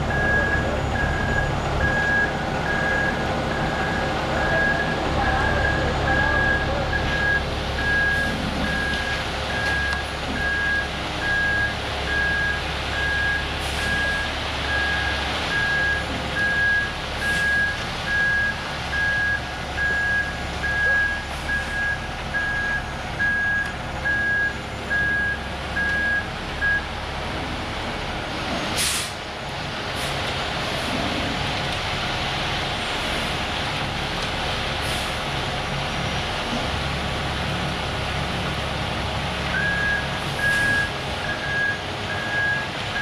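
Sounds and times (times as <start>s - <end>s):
truck engine running: 0.0s - 43.0s
reversing alarm beeping: 0.1s - 26.9s, 39.6s - 43.0s.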